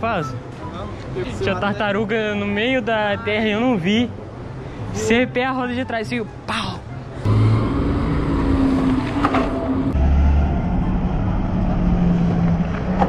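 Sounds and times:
low traffic rumble: 0.0 - 13.0
vehicle engine humming: 6.3 - 13.0.

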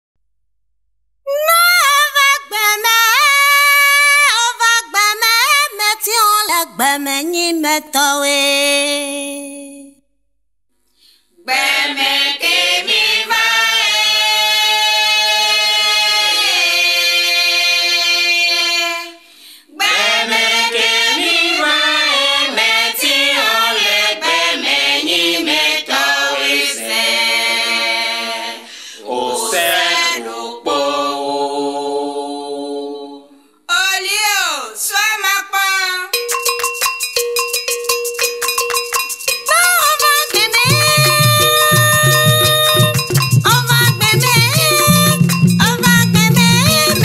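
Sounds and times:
woman singing: 1.3 - 10.0, 39.5 - 47.0
voices singing in harmony: 11.4 - 33.4, 39.9 - 47.0.

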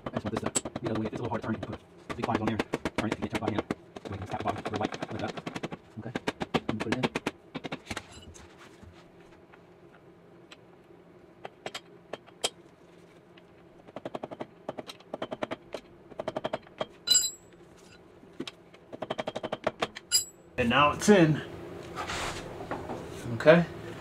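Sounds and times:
ringing metallic clink: 17.1 - 17.5, 20.1 - 20.4.

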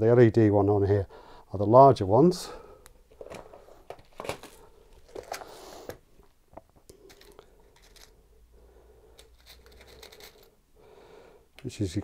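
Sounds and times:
small clicks and rustles: 3.1 - 8.2, 9.1 - 10.6.

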